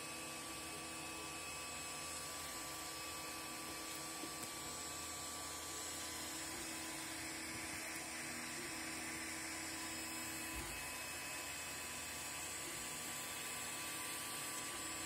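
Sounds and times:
cooling fans whirring: 0.0s - 15.0s.

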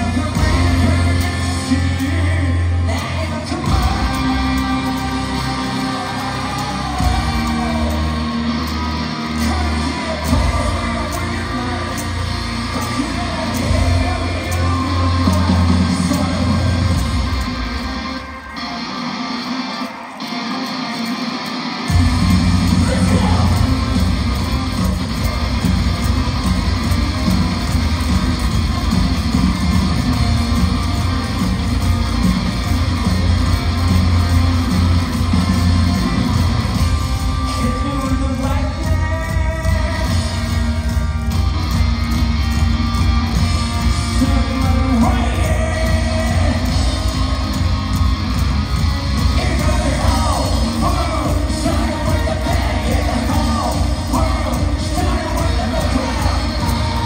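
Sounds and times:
lead vocal singing: 0.0s - 17.5s, 21.9s - 25.0s, 37.4s - 41.4s, 43.9s - 48.2s, 49.2s - 57.0s
pounding drum kit: 0.0s - 18.2s, 21.9s - 57.0s
rock band playing live: 0.0s - 57.0s.

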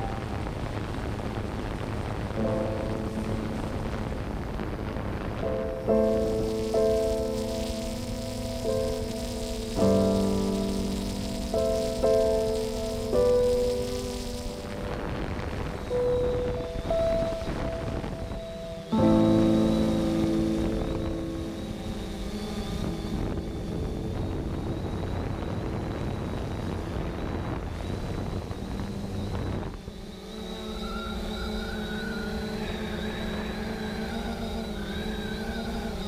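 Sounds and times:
quadcopter propellers whirring: 0.0s - 36.0s.

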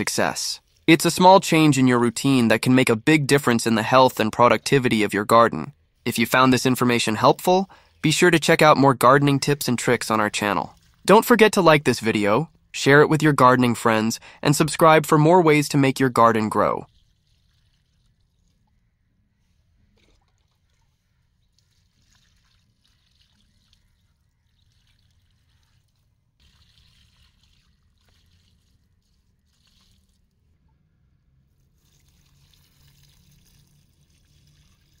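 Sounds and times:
water trickling onto soil: 0.6s - 2.8s, 10.4s - 11.5s, 16.7s - 35.0s.

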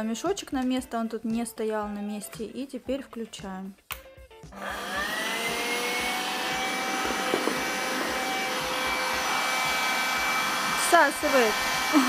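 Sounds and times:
handheld vacuum cleaner whine: 4.6s - 12.0s
air rushing into vacuum: 5.9s - 10.8s.

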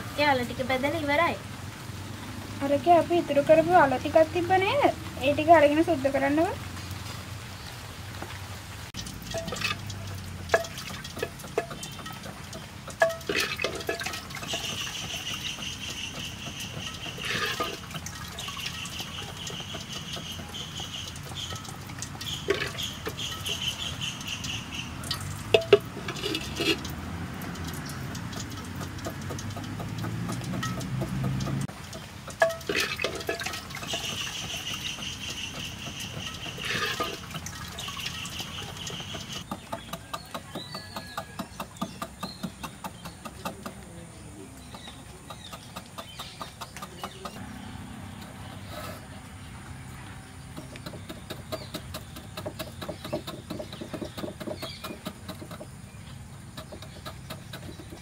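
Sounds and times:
utensils knocking and clicking: 9.0s - 23.9s, 25.0s - 43.9s, 50.5s - 55.8s
wooden spoon stirring liquid: 9.0s - 43.8s
high chirping: 14.2s - 26.8s, 33.8s - 43.3s.

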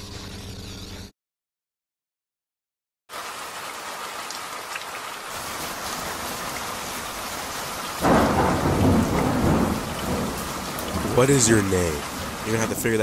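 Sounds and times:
rain hissing: 3.1s - 13.0s
loud thunder rumble: 8.0s - 13.0s.

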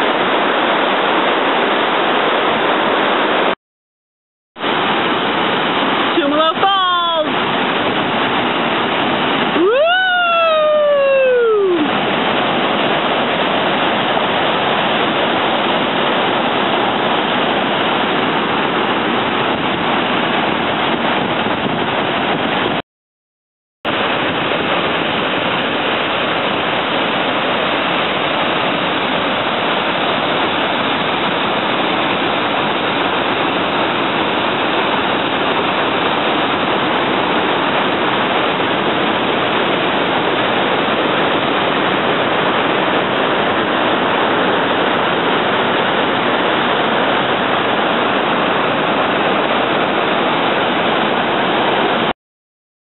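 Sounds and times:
waterfall roaring: 0.0s - 3.6s, 4.6s - 22.8s, 23.9s - 52.1s
high rising and falling call: 9.6s - 11.9s.

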